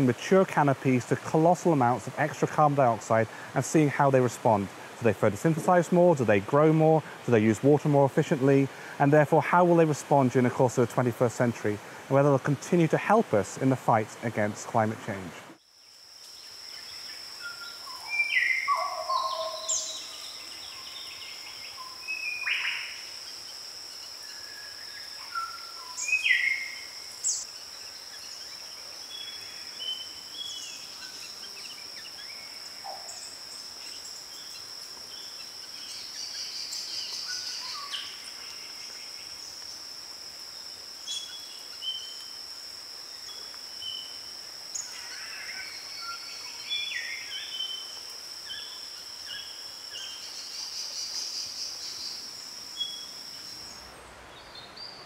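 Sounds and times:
high-pitched insect drone: 0:15.6 - 0:54.0
bird calls and chirps: 0:16.8 - 0:23.0, 0:24.7 - 0:39.5.

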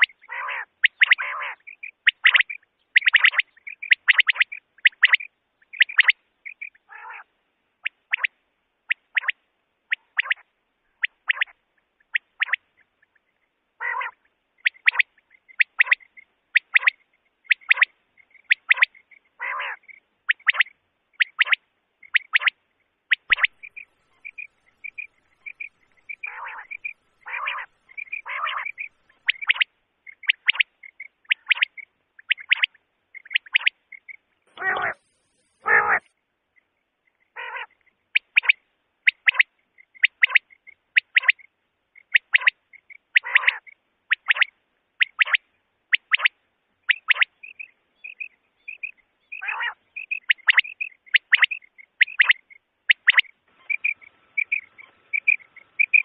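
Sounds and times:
quail calling: 0:00.0 - 0:36.1, 0:37.2 - 0:56.0
harsh croaking burst: 0:23.3 - 0:29.6, 0:34.5 - 0:36.1.

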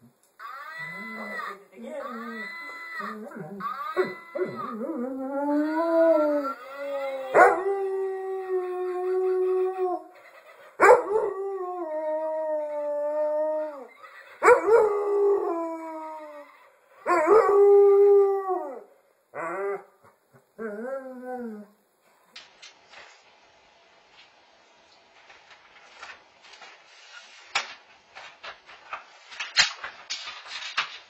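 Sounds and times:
dog howling: 0:02.1 - 0:10.1.

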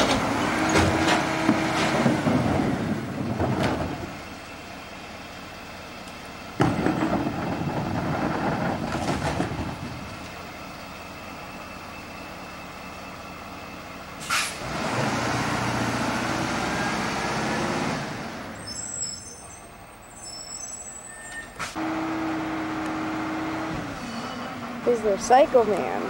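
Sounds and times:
cart rattling into garbage truck: 0:00.0 - 0:04.4, 0:06.6 - 0:10.6
truck engine idling: 0:00.0 - 0:26.0
truck engine pulling away: 0:00.0 - 0:26.0
air brakes hissing: 0:14.2 - 0:14.6, 0:18.6 - 0:21.8, 0:23.9 - 0:24.6.

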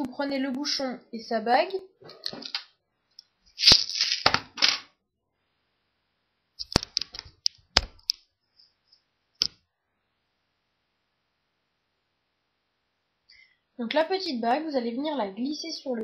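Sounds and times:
rustling of small hard objects: 0:03.5 - 0:04.3.

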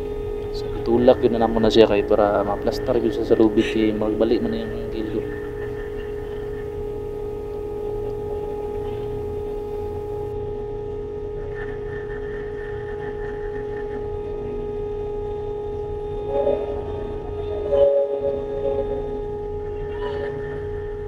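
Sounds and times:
ship machinery humming: 0:00.0 - 0:21.0.

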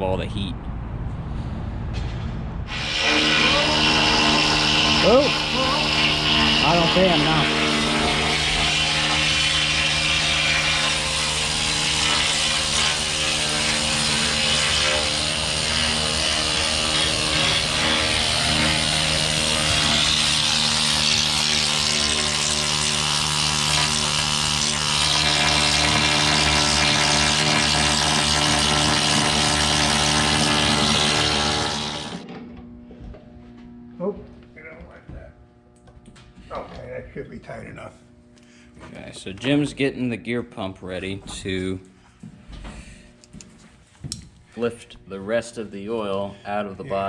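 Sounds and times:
pneumatic chipping hammer on steel: 0:02.7 - 0:32.4.

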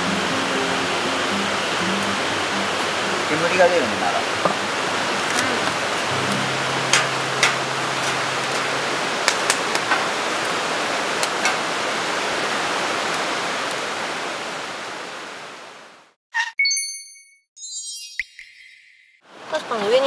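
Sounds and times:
steady rushing hiss: 0:00.0 - 0:15.7
campfire crackling and popping: 0:03.3 - 0:13.9.

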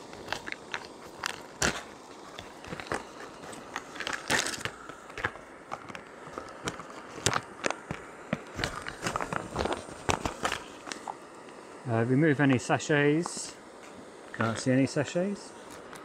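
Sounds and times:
plastic pouch crackling: 0:00.2 - 0:11.1
plastic pouch ripping: 0:03.6 - 0:04.9.

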